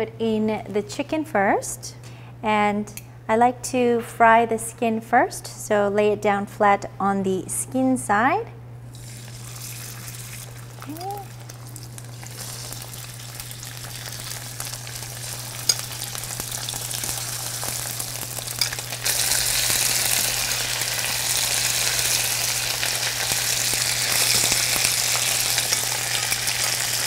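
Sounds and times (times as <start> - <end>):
chicken sizzling in oil: 8.9 - 27.0.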